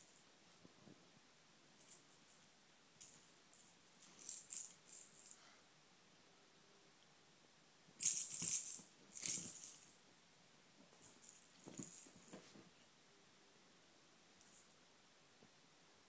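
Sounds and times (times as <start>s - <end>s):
plastic rattle ball shaken: 3.0s - 5.4s, 8.0s - 10.0s, 11.0s - 12.4s.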